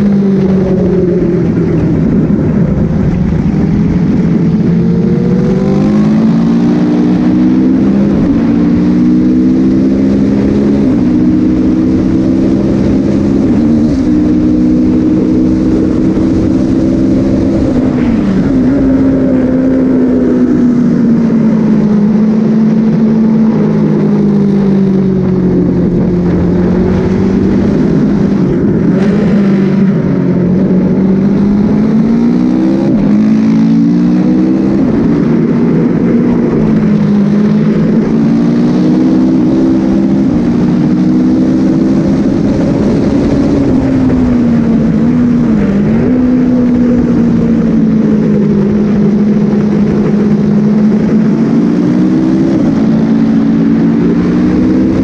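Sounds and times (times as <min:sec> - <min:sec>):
motorcycle engine revving: 0:00.0 - 0:55.0
wind noise: 0:00.0 - 0:55.0.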